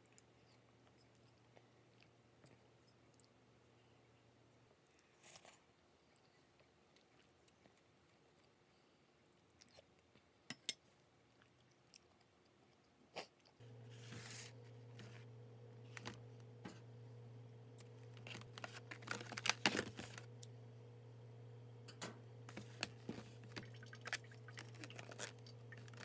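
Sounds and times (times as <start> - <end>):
steady low hum: 13.6 - 26.0
plastic packaging crinkling: 17.8 - 20.4, 22.5 - 26.0.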